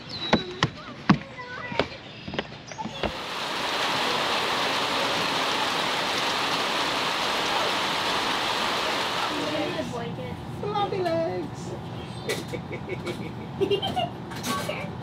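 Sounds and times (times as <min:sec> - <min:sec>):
heavy rain on water: 0:03.1 - 0:10.0.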